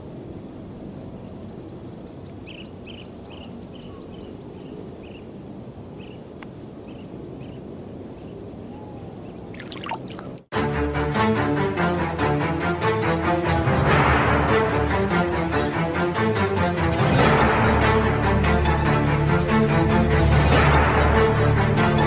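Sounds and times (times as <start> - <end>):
music: 10.5 - 22.0.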